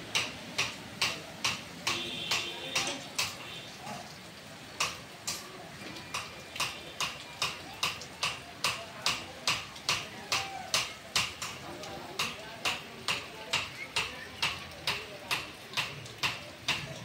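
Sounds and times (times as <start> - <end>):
hooves clopping on wet road: 0.1 - 4.2.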